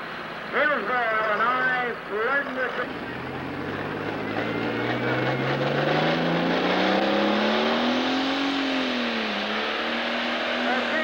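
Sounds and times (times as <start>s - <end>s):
diesel tractor engine revving: 2.7s - 11.0s.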